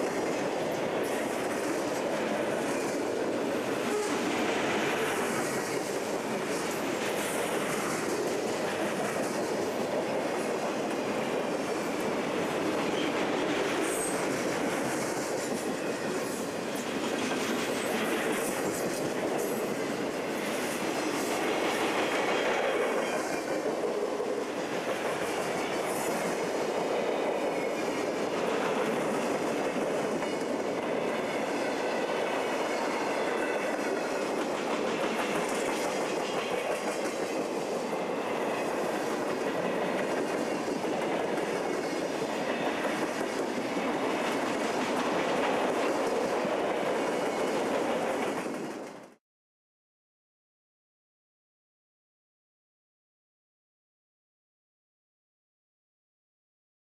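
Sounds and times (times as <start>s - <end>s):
freight train rumbling past: 0.0s - 49.2s
steel wheels clattering on rails: 3.8s - 49.1s.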